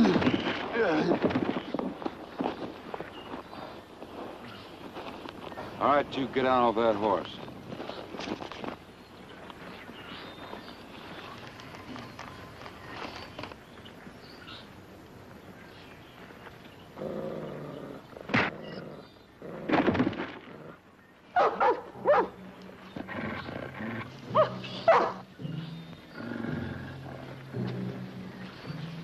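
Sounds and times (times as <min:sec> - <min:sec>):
dog barking: 0:21.4 - 0:22.4, 0:24.3 - 0:25.2
background music with low notes: 0:21.5 - 0:29.0.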